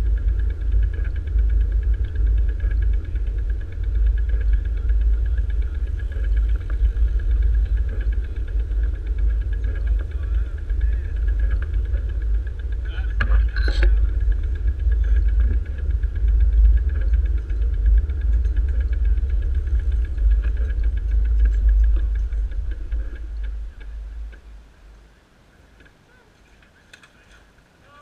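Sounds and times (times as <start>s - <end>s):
fast steady ticking: 0.0s - 25.1s
wind rumbling on microphone: 0.0s - 28.0s
faint clicks: 25.7s - 27.7s.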